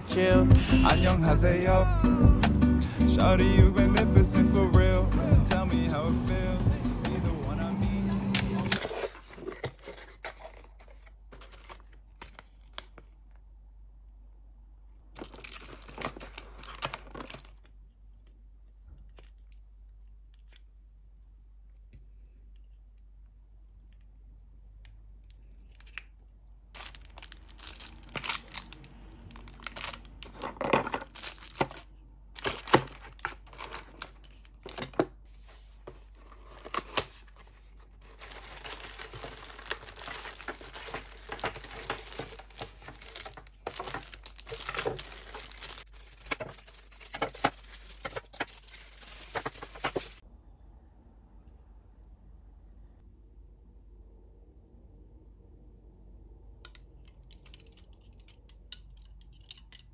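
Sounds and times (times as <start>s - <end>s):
cardboard and plastic rustling: 8.2s - 13.4s, 15.1s - 17.8s, 26.8s - 50.2s.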